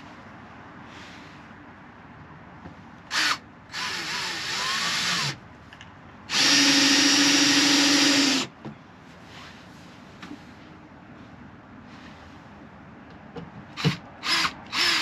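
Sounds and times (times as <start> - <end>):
cordless drill running: 3.1 - 5.4, 6.3 - 8.5, 13.8 - 15.0.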